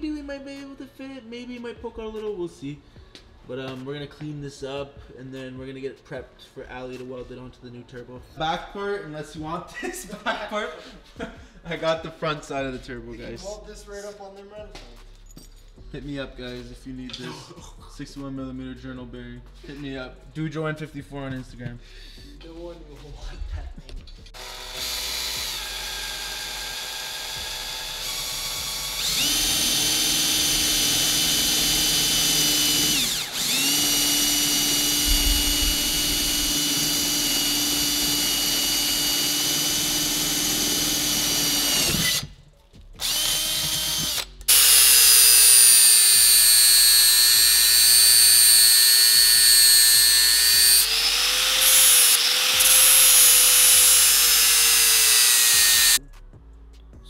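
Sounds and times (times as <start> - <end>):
angle grinder cutting metal: 24.4 - 42.3, 43.0 - 56.0
electric drill whining: 24.4 - 42.4, 43.0 - 56.0.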